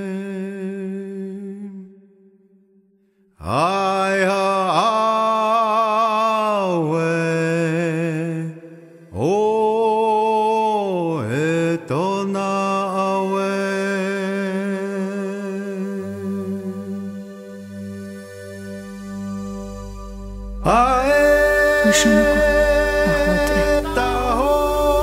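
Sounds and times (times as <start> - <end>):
wordless chanting: 3.4 - 25.0
low drone: 15.8 - 25.0.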